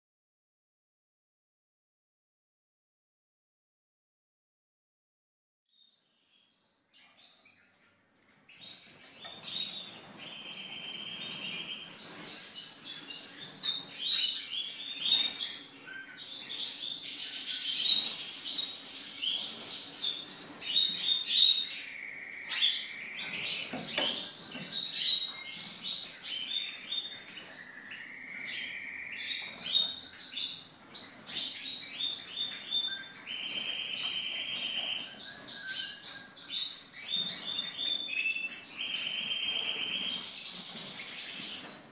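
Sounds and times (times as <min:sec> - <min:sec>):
finches twittering and whistling: 0:08.8 - 0:41.7.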